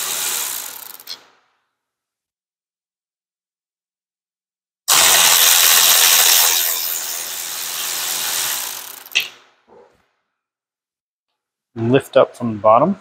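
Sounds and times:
electric ratchet running: 0.0 - 1.2, 4.9 - 9.3
sharp click: 9.1 - 9.9.

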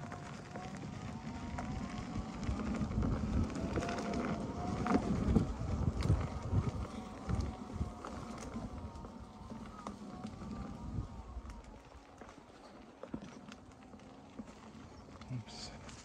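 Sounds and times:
wind rumble on microphone: 0.0 - 12.2
faint electric motor whine: 0.0 - 16.0
tyres on gravel: 0.0 - 16.0.

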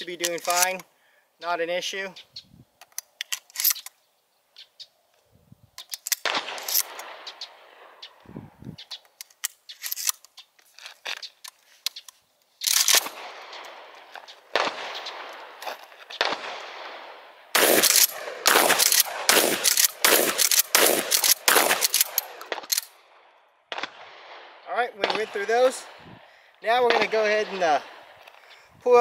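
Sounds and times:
gunshots with echo: 6.2 - 8.1, 13.0 - 22.7, 23.7 - 28.2
rapid gunfire: 17.6 - 22.7.

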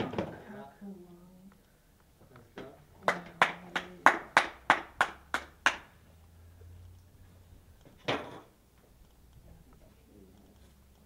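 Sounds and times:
hand claps: 3.0 - 6.0.

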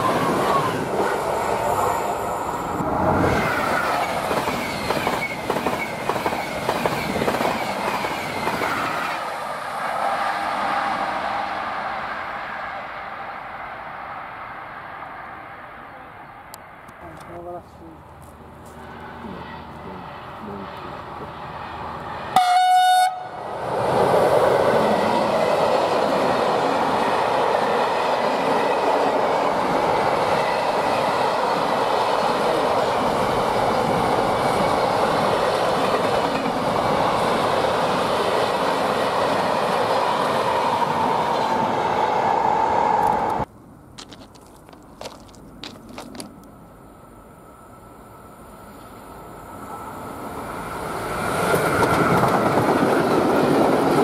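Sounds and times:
freight train wheels rushing: 0.0 - 15.2, 23.2 - 46.4, 49.5 - 54.0
locomotive horn blast: 22.4 - 23.4.

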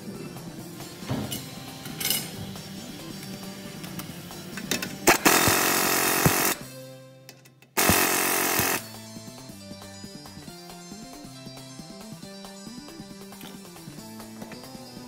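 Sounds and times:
background music: 0.0 - 15.0
power tool bursts: 5.1 - 6.6, 7.8 - 8.9.

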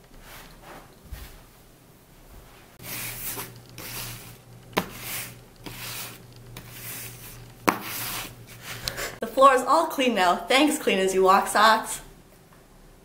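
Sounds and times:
sock feet sliding on hardwood floor: 2.8 - 9.0.

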